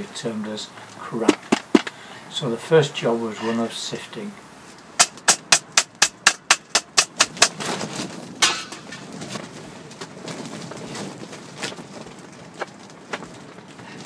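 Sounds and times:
metal scraping: 0:03.2 - 0:03.8
compost rustling through mesh: 0:07.2 - 0:14.0.

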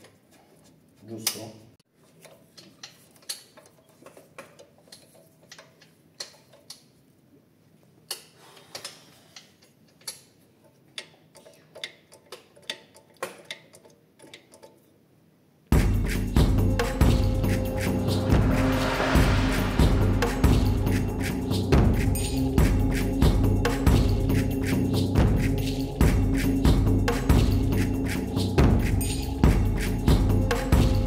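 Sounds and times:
drum-heavy music: 0:15.8 - 0:31.0.

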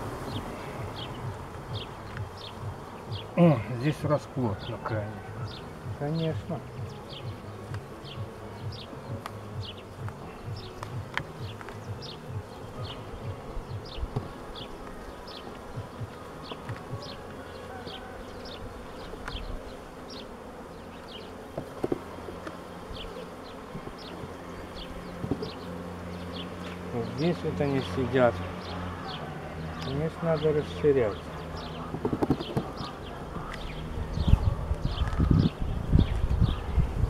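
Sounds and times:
bees buzzing: 0:00.0 - 0:37.0
wooden hive frames knocking: 0:00.8 - 0:20.4, 0:21.0 - 0:27.9, 0:31.5 - 0:33.7.

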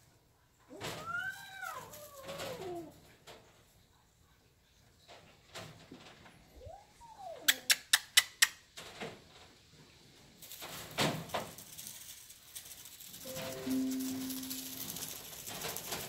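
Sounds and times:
rustling: 0:08.8 - 0:16.0.

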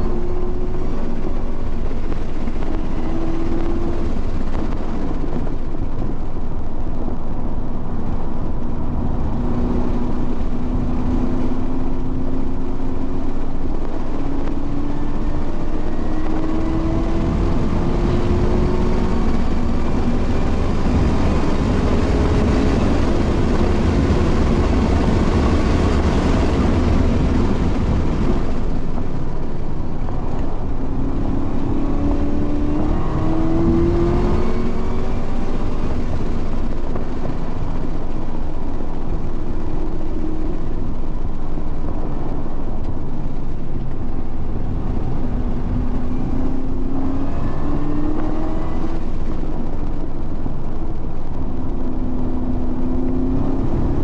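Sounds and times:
wind noise: 0:00.0 - 0:54.0
race car engine accelerating: 0:13.9 - 0:28.8, 0:29.8 - 0:37.4, 0:43.8 - 0:49.7.

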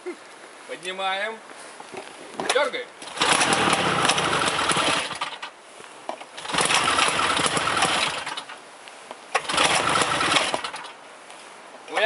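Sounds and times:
snowmobile engine revving: 0:03.0 - 0:05.4, 0:06.4 - 0:08.5, 0:09.4 - 0:10.9.

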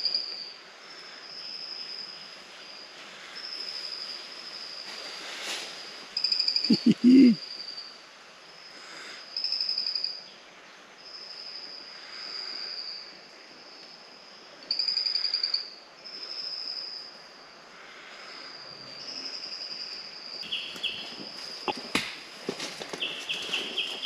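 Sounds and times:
faint high calls: 0:06.6 - 0:07.4.

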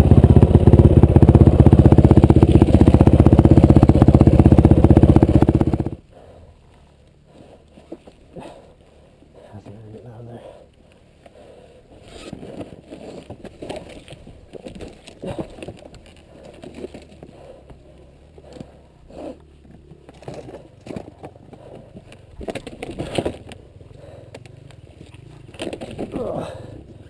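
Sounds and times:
dirt bike engine running: 0:00.0 - 0:06.0, 0:12.0 - 0:27.0
scraping of dirt and rocks: 0:11.9 - 0:27.0.

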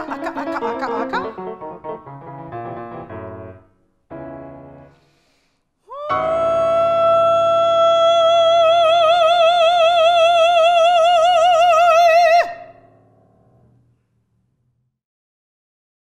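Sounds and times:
grand piano chord: 0:00.0 - 0:05.0.

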